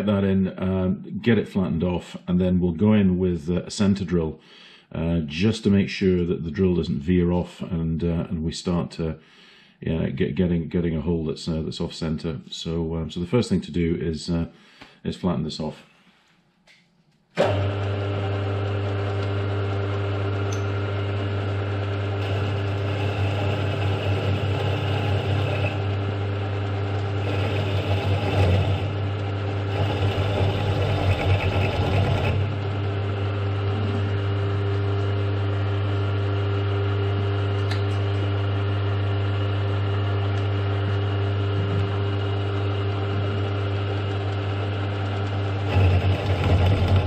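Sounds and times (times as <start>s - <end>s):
milling cutter cutting metal: 17.4s - 34.4s, 42.7s - 47.0s
milling machine spindle humming: 17.4s - 47.0s.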